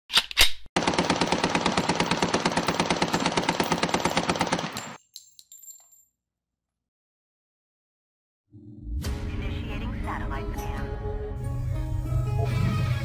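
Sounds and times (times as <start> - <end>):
rapid automatic gunfire: 0.8 - 5.0
light clinks: 4.8 - 6.1.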